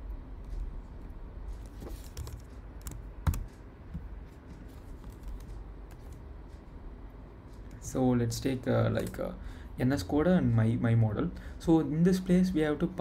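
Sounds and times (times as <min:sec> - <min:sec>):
typing on computer keyboard: 0:02.0 - 0:03.7, 0:05.0 - 0:06.2.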